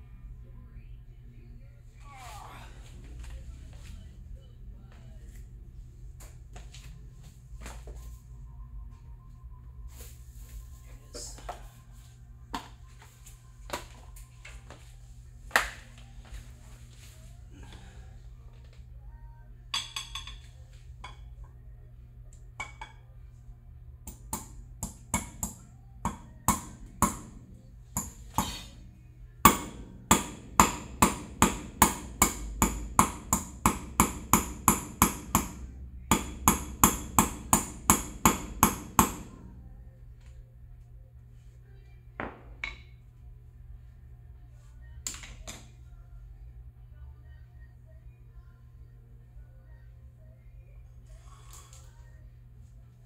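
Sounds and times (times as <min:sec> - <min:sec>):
hammer tapping on metal: 0:24.1 - 0:27.4, 0:28.0 - 0:28.7, 0:29.4 - 0:39.4.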